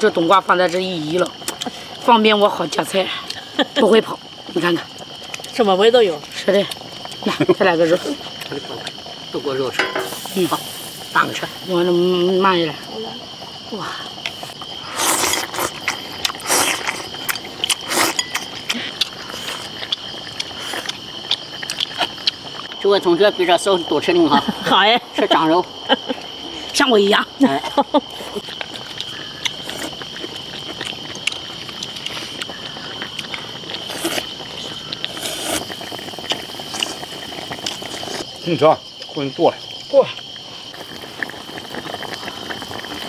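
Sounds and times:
crickets chirping: 0.0s - 43.0s
person slurping noodles: 14.8s - 19.8s, 33.8s - 34.3s, 35.1s - 38.2s.

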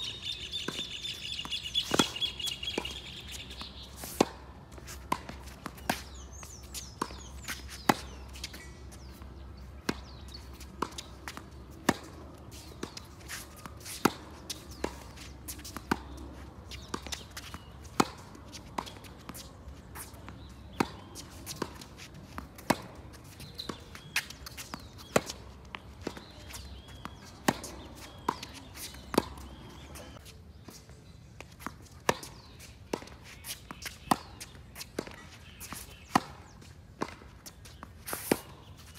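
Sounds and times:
tennis racket hitting ball: 1.8s - 6.2s, 9.3s - 30.2s, 31.6s - 38.6s.

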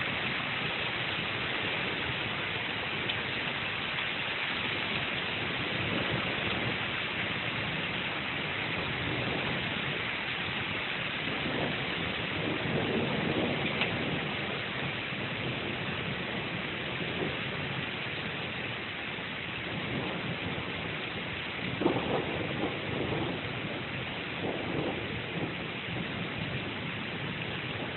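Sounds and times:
steady rain: 0.0s - 27.9s
thunder rumbling: 0.0s - 27.9s
thunder crack: 11.3s - 17.8s, 19.7s - 20.9s, 21.7s - 27.0s.

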